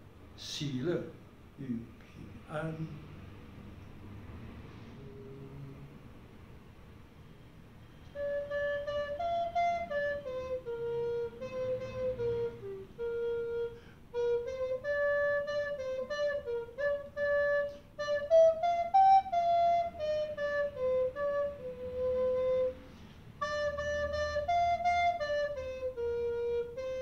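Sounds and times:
recorder playing slow melody: 0:08.0 - 0:22.8, 0:23.4 - 0:27.0.

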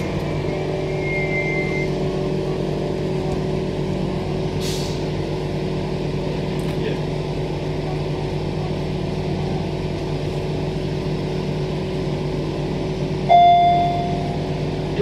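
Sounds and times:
electric train hum: 0:00.0 - 0:15.0
door warning beep: 0:13.3 - 0:14.3.

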